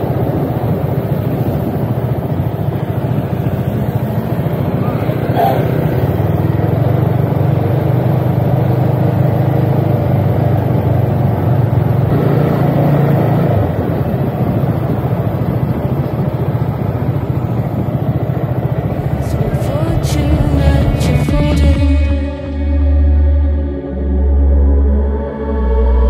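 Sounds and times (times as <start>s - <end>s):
motorcycle engine running: 0.0s - 25.3s.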